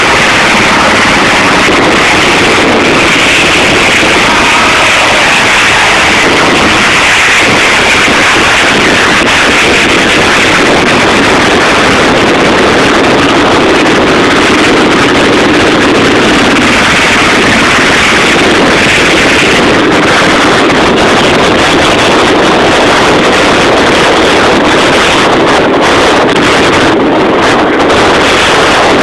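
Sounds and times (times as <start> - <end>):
helicopter rotor and turbine: 0.0 - 29.0
wind buffeting microphone: 0.0 - 29.0.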